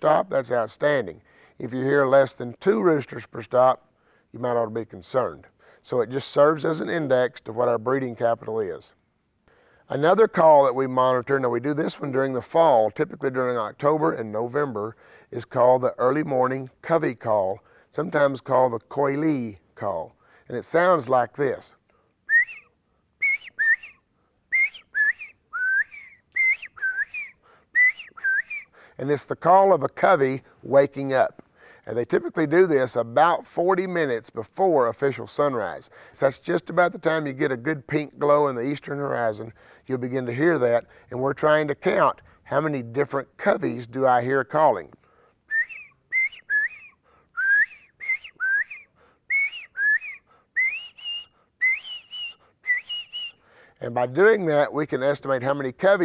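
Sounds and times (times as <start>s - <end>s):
man whistling bird call: 22.2s - 28.9s, 45.5s - 53.7s.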